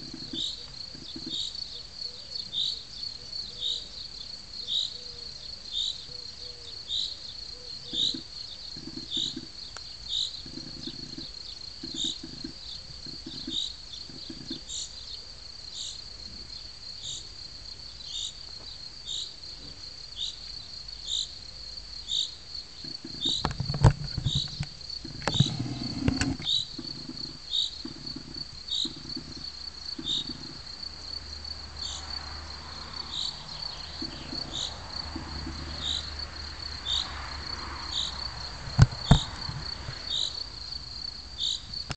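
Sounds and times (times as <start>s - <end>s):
crickets chirping: 0.0s - 41.9s
loud knocks and rustling: 38.6s - 40.0s.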